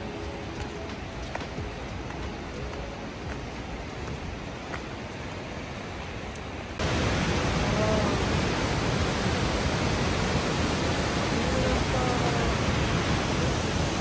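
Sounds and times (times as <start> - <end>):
soft outdoor hiss: 0.0 - 14.0
waterfall rushing into pool: 6.4 - 14.0.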